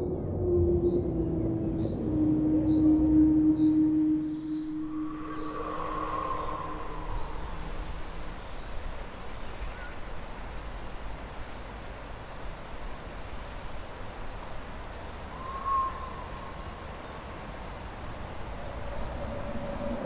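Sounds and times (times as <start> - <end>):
low ambient rumble: 0.0 - 9.1.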